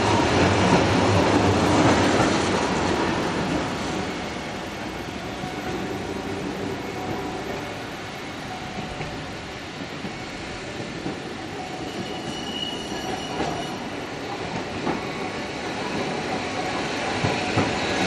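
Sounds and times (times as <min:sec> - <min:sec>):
tram running noise: 0:00.0 - 0:18.0
wheel squeal: 0:11.7 - 0:13.9.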